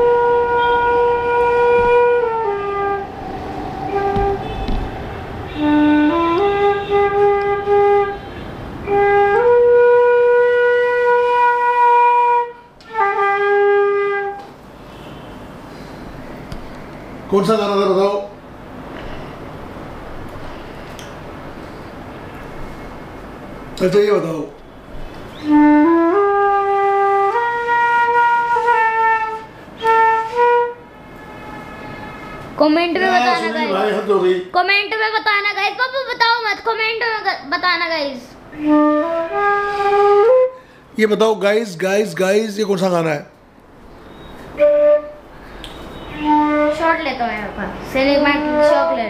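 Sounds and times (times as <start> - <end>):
flute-like melody: 0.0 - 14.5, 25.0 - 32.2, 38.5 - 40.7, 44.1 - 47.0
wind instrument slow tune: 0.0 - 14.5, 25.4 - 32.5, 38.5 - 40.8, 44.0 - 47.0.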